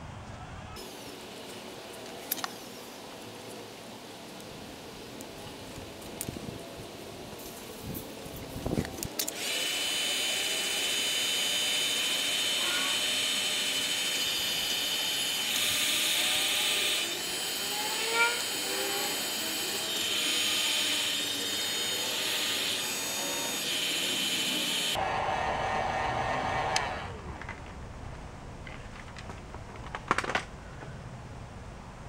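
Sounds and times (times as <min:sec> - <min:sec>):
heat gun fan hissing: 0:08.6 - 0:27.2.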